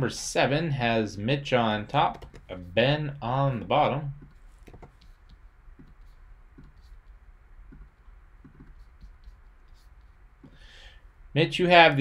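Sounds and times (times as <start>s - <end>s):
mouse and keyboard clicks: 4.2s - 6.0s.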